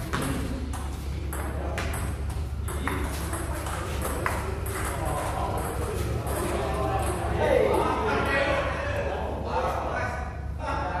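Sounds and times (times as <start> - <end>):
ball bouncing on table: 0.0 - 7.4
table tennis ball hitting bats: 0.0 - 7.4
steady low hum: 0.0 - 11.0.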